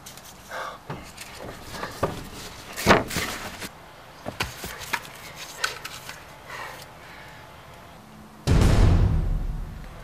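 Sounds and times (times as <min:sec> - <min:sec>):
loud thump: 0:08.5 - 0:10.0.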